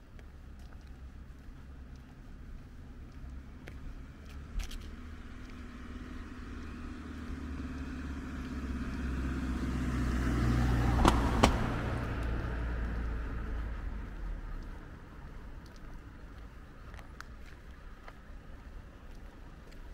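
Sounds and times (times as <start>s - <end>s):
car driving past: 3.0s - 15.1s.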